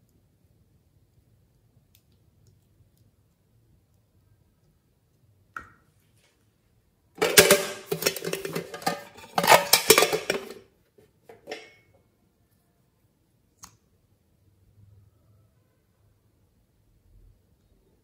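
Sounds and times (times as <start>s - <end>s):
box clattering and clicking: 7.2s - 10.6s
brushes rattling in box: 7.2s - 10.6s.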